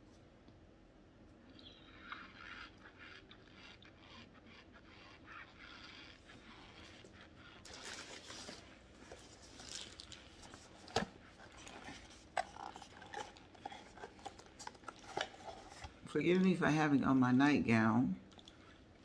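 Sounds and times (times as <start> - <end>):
cardboard box rustling: 7.6 - 16.0.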